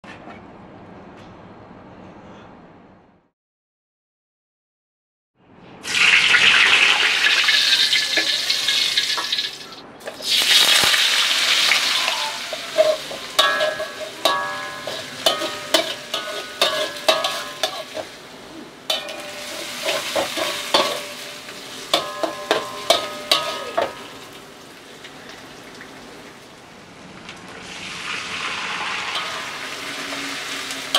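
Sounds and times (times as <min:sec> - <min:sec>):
food sizzling in hot oil: 0:05.8 - 0:26.3, 0:27.5 - 0:30.9
metal spatula scraping wok: 0:07.6 - 0:24.4, 0:28.6 - 0:30.9.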